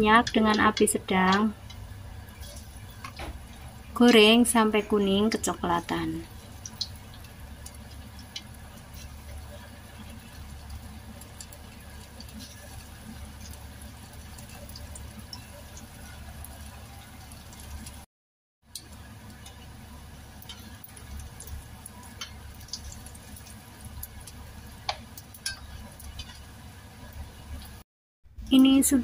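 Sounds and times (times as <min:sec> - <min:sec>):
food deep-frying in hot oil: 0:00.0 - 0:29.0
spatula clicking in pan: 0:00.2 - 0:01.8, 0:06.3 - 0:08.9, 0:20.3 - 0:26.5.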